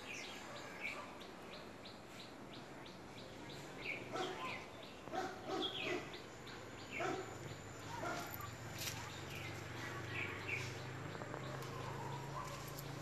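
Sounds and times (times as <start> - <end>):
bird chirping: 0.0 - 13.0
dog barking: 0.5 - 1.2, 4.1 - 6.2, 6.9 - 9.2, 11.4 - 13.0.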